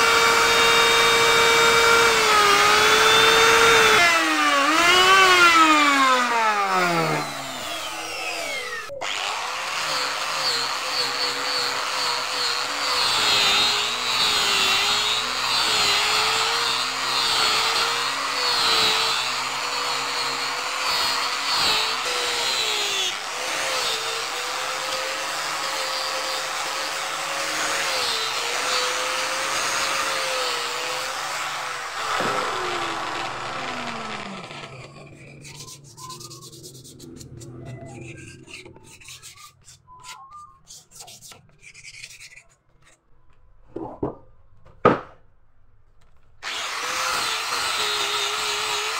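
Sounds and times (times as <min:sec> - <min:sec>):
power tool motor spinning down: 0:00.0 - 0:23.3, 0:27.5 - 0:35.5, 0:46.4 - 0:48.9
electric trim router whine: 0:00.0 - 0:35.3, 0:46.4 - 0:48.9.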